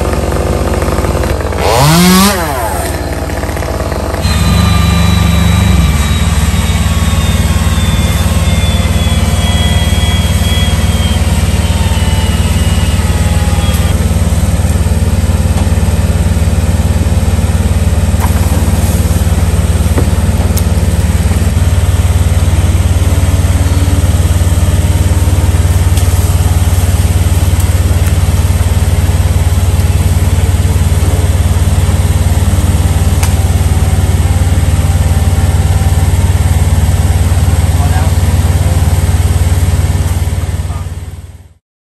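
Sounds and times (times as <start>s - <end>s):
combustion engine running steadily: 0.0s - 41.6s
faint high whine: 4.1s - 14.2s.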